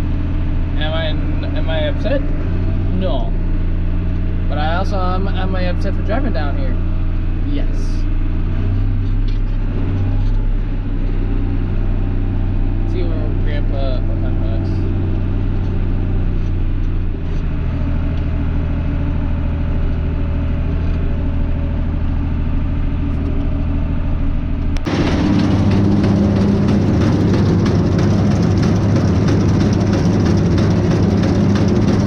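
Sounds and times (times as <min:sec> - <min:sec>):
tractor engine running: 0:00.0 - 0:32.0
machinery unloading silage: 0:24.8 - 0:32.0.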